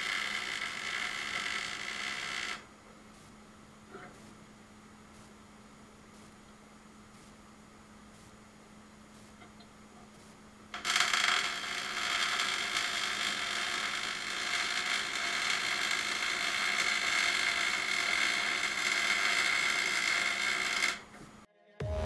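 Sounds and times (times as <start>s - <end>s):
welding arc crackling hiss: 0.0s - 3.4s, 5.1s - 5.4s, 9.1s - 9.4s, 10.2s - 21.0s.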